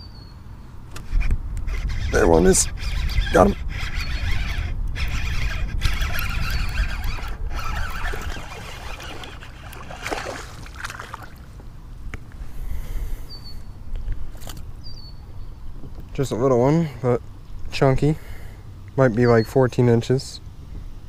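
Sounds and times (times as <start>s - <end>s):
fishing reel cranking: 1.9s - 10.4s
water splashing: 7.1s - 11.6s.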